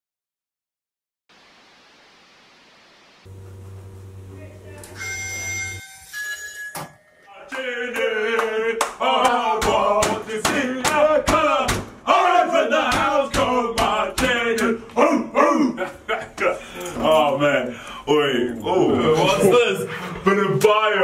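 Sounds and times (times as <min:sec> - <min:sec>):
men shouting and chanting: 0:07.3 - 0:21.0
hand claps: 0:07.9 - 0:11.9.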